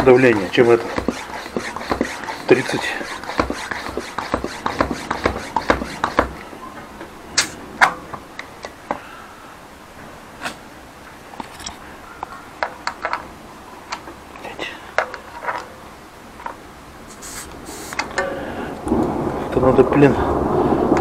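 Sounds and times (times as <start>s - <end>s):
bicycle pump strokes: 0.0s - 6.5s.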